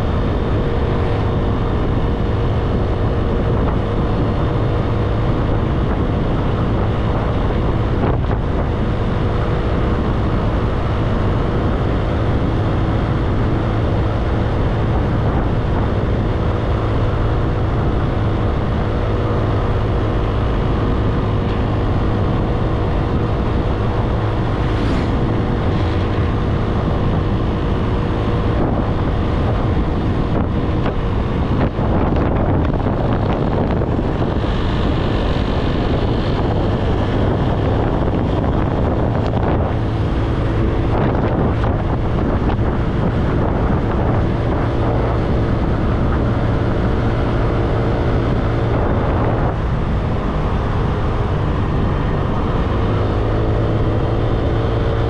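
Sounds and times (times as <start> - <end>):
motorbike engine hum: 0.0 - 55.0
wind noise on microphone: 0.0 - 55.0.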